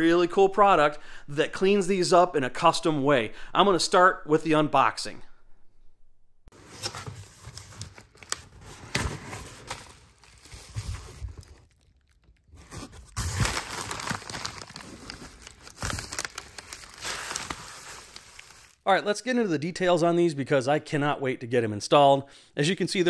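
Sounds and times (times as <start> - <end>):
bubble wrap and cardboard crinkling: 6.5 - 18.8.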